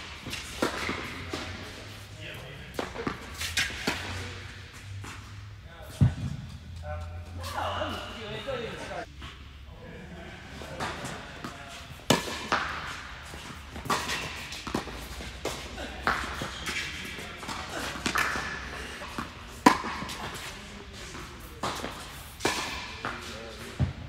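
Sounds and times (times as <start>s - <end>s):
tennis ball bouncing: 0.0s - 1.7s, 2.7s - 4.2s, 10.8s - 24.0s
tennis ball hit by racquets: 0.0s - 2.0s, 2.7s - 5.2s, 10.8s - 24.0s.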